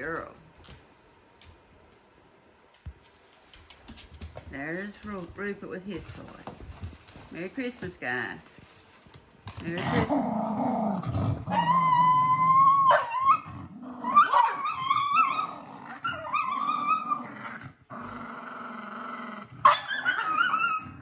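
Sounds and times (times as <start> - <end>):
dogs growling: 9.6 - 21.0
dog whining high-pitched: 11.5 - 17.2, 19.7 - 21.0.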